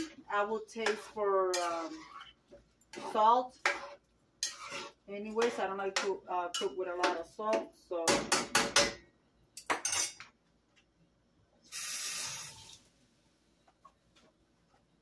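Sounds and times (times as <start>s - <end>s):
metal spoon scraping metal pot: 0.8s - 6.8s.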